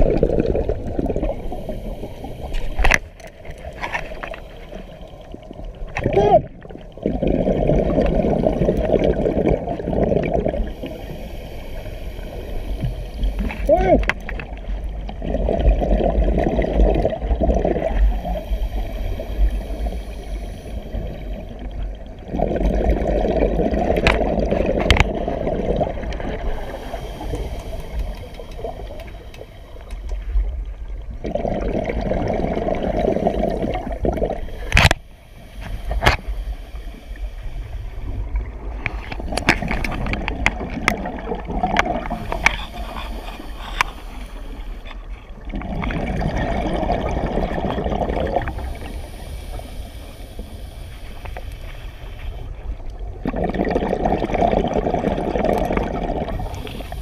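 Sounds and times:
gurgling exhaled bubbles: 0.0s - 36.8s, 37.6s - 51.3s, 52.6s - 57.0s
diver breathing through regulator: 1.2s - 5.2s, 10.5s - 14.1s, 17.8s - 21.7s, 26.4s - 30.3s, 32.6s - 40.8s, 41.7s - 46.0s, 48.2s - 52.7s, 56.2s - 57.0s.

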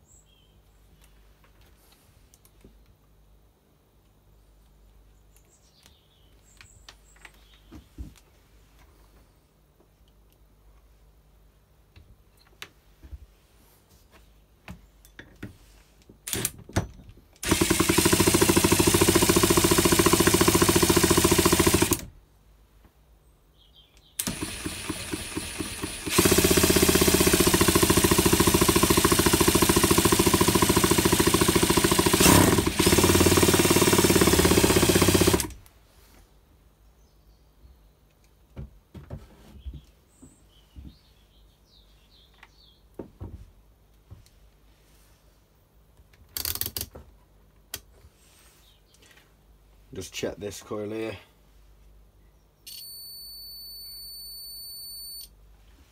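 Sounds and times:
power tool motor running: 17.4s - 22.1s, 24.2s - 35.6s.

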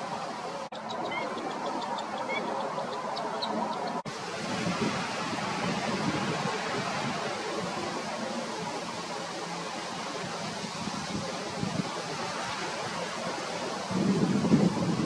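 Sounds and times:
outdoor background noise: 0.0s - 15.0s
faint high bird calls: 0.7s - 4.0s.

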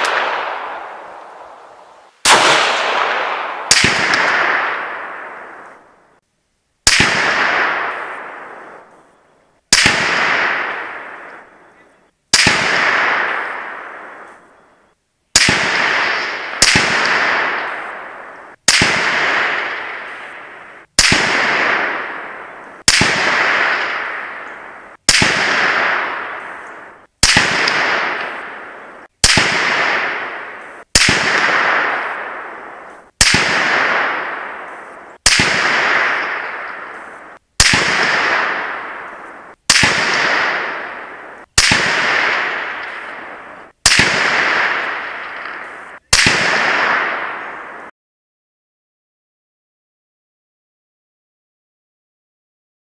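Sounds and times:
rifle shots with echoing tail: 0.0s - 6.0s, 6.9s - 9.0s, 9.7s - 11.7s, 12.3s - 14.4s, 15.4s - 47.9s.

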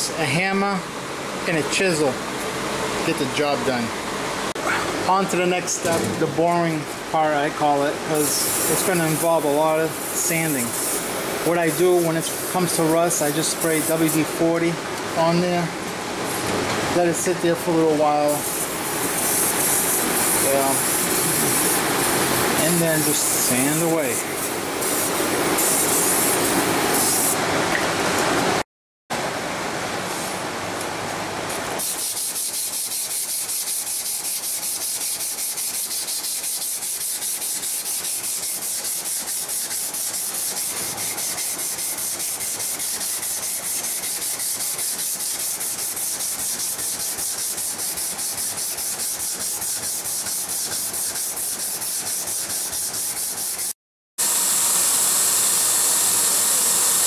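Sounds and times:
aerosol spray hissing: 8.2s - 9.2s, 9.9s - 11.1s, 18.4s - 27.4s
hand sanding blade: 8.2s - 14.3s, 18.3s - 26.4s, 31.8s - 53.8s.

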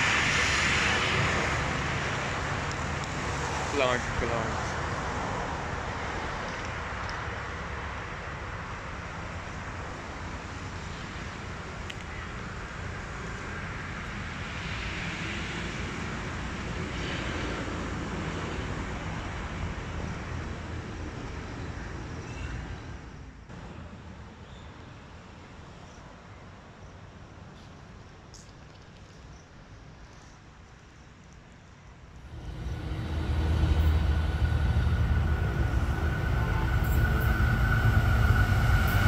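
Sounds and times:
passing road traffic rumble: 0.0s - 24.0s, 32.2s - 39.0s.

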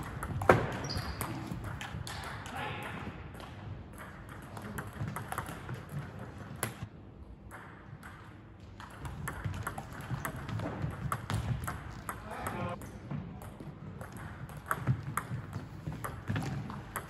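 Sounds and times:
table tennis ball clicking: 13.5s - 17.0s.

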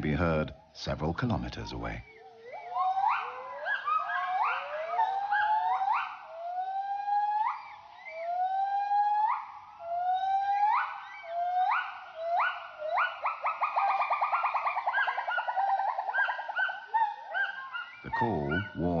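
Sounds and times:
gibbon hooting call: 2.0s - 19.0s.

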